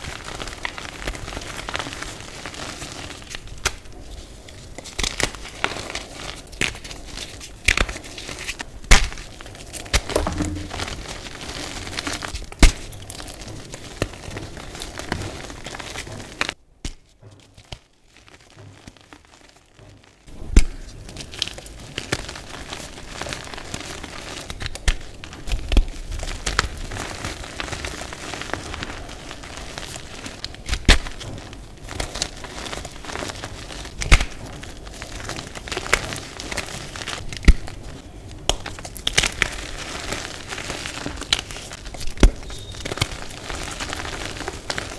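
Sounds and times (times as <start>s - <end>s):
hands crushing chalk blocks: 0.0s - 19.4s, 20.5s - 44.9s.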